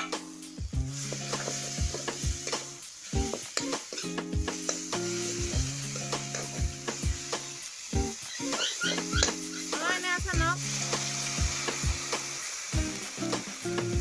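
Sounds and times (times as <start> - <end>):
onions sizzling in hot oil: 0.0 - 14.0
spatula scraping a pan: 8.2 - 9.8.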